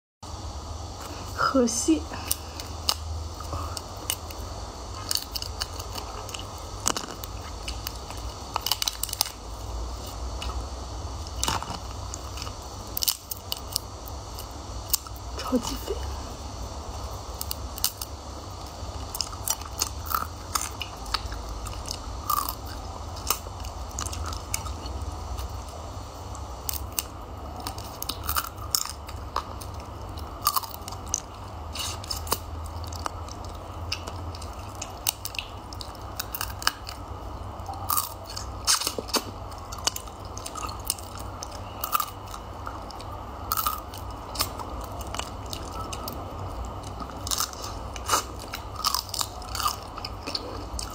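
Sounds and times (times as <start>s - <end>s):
steady low hum: 0.2s - 50.9s
chewing and sucking: 2.2s - 9.4s, 17.0s - 37.0s, 37.6s - 50.9s
crab shell cracking and crunching: 2.2s - 15.2s, 17.3s - 50.9s.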